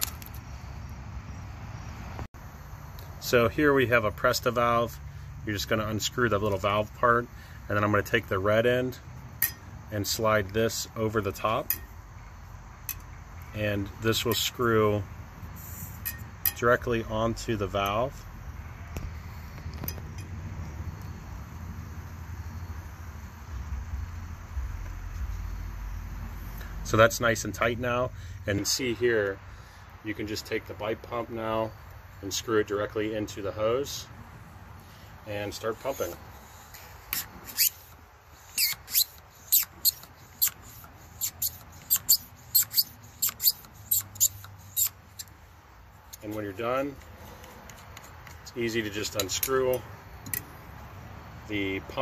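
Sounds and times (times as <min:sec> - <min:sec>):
low outdoor rumble: 0:00.0 - 0:38.5
faint hiss: 0:09.9 - 0:52.0
hand pump strokes: 0:35.6 - 0:45.3.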